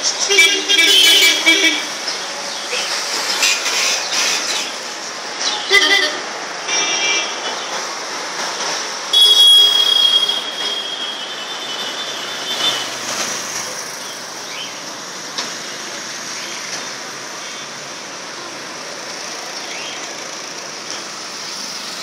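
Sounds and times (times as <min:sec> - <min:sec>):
road traffic: 0:00.0 - 0:22.0
thin high squeal: 0:09.2 - 0:12.8.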